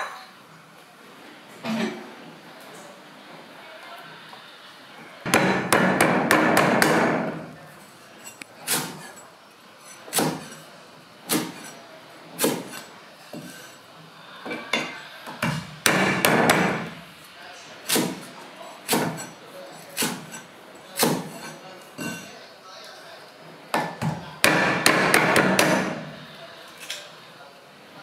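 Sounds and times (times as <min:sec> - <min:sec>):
cleaver chopping on wooden block: 0:05.3 - 0:07.2, 0:15.4 - 0:16.9, 0:23.8 - 0:26.0.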